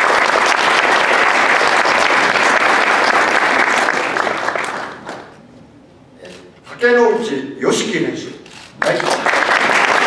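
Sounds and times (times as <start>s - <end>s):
audience applauding: 0.0s - 5.4s, 8.8s - 10.0s.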